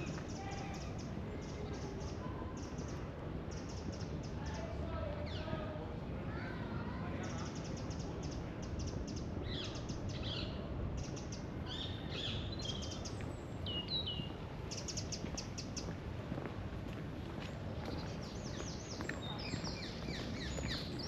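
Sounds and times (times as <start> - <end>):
small birds chirping: 7.2 - 16.0, 17.4 - 21.0.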